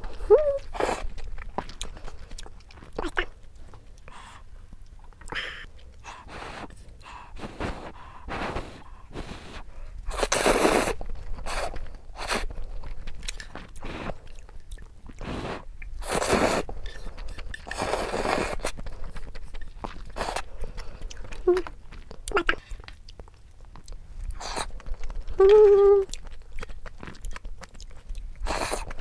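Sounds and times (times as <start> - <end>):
chewing: 0.0 - 29.0
person slurping noodles: 7.4 - 12.5, 15.2 - 18.8.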